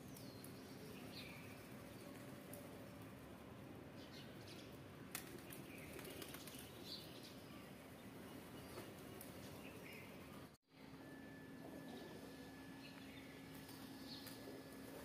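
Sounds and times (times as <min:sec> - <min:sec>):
pigeons flapping wings: 0:05.1 - 0:06.9.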